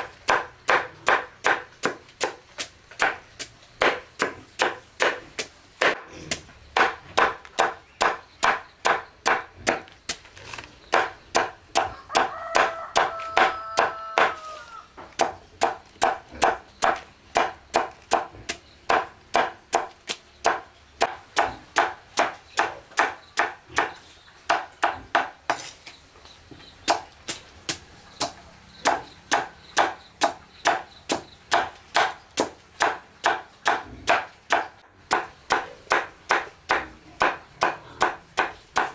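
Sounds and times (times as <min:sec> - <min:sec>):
knife chopping on wooden board: 0:00.3 - 0:09.9, 0:10.9 - 0:14.4, 0:15.1 - 0:25.7, 0:26.9 - 0:38.9.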